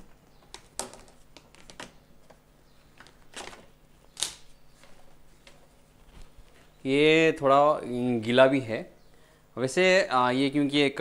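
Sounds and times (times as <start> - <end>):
clothes rustling: 4.7 - 6.8.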